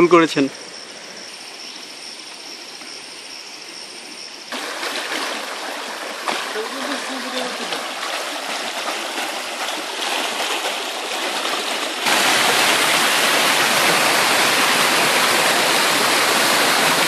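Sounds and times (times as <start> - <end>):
stream water rushing over rocks: 4.5 - 17.0.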